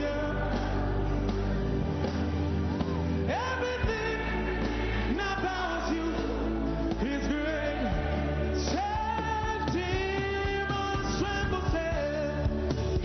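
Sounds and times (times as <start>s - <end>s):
band accompaniment: 0.0s - 13.0s
group singing into microphones: 3.3s - 12.0s.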